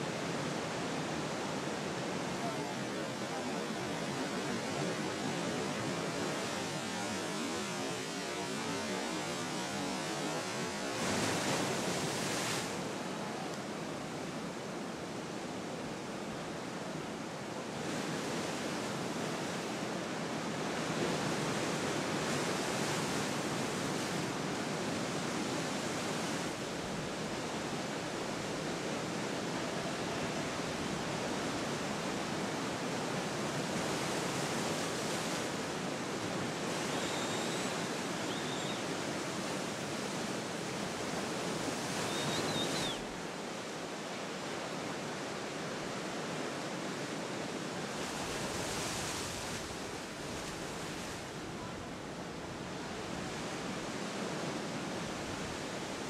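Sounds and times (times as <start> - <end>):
ocean waves breaking: 21.0 - 44.4.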